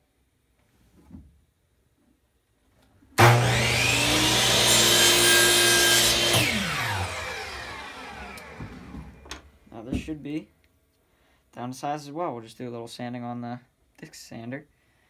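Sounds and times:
electric miter saw whining: 3.2s - 9.3s.

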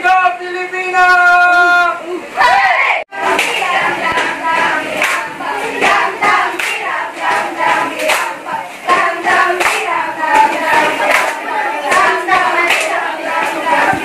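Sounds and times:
voices singing together: 1.1s - 14.0s
people clapping in rhythm: 3.1s - 14.0s.

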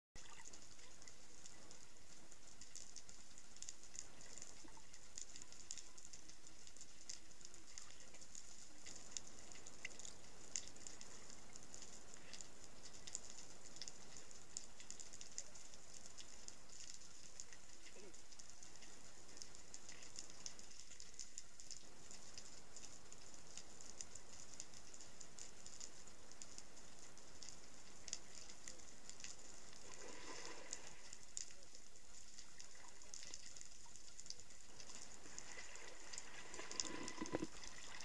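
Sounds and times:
crackle of small clicks: 0.2s - 38.0s
steady high hiss: 0.3s - 38.0s.

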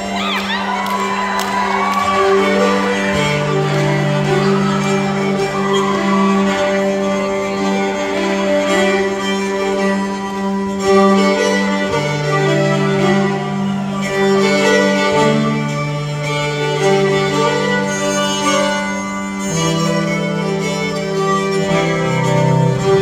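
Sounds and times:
fiddle melody: 0.0s - 23.0s
guitar: 0.0s - 23.0s.

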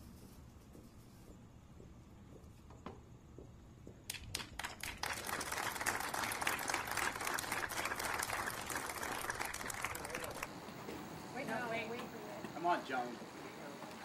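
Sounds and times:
crowd applauding: 4.1s - 10.5s.

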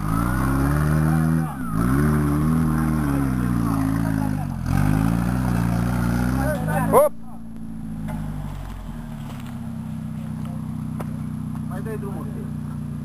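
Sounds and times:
truck engine revving under load: 0.0s - 12.9s.

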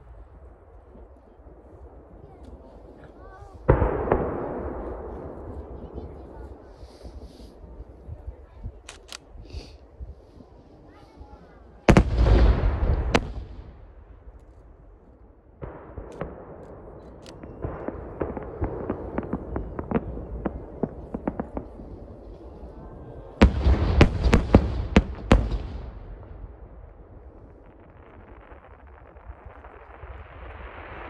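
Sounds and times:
firework blasts: 0.0s - 31.0s
firework rumble: 0.0s - 31.0s
firework pops and crackles: 11.9s - 14.6s, 15.6s - 22.5s, 23.4s - 31.0s.

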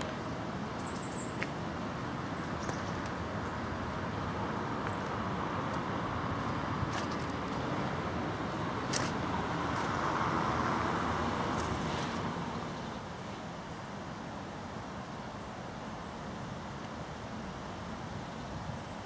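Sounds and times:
road traffic noise: 0.0s - 19.0s
vehicle passing: 4.0s - 12.8s.

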